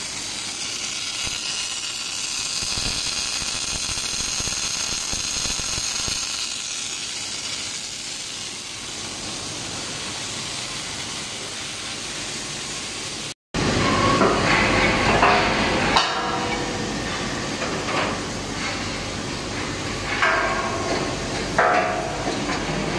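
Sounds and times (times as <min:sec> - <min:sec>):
welding arc hissing: 0:00.0 - 0:13.4
metallic clanks and knocks: 0:20.1 - 0:22.8.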